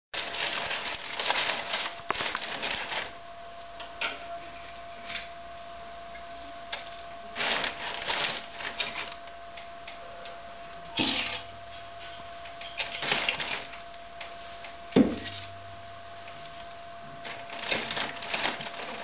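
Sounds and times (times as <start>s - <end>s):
newspaper crinkling and rustling: 0.2s - 3.2s, 6.7s - 9.3s, 12.6s - 13.9s, 16.4s - 19.0s
faint high tone: 10.0s - 10.5s.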